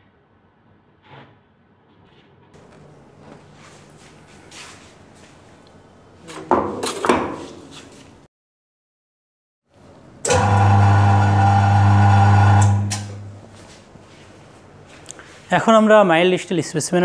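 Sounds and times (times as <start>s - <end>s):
faint handling and scraping: 2.0s - 6.5s.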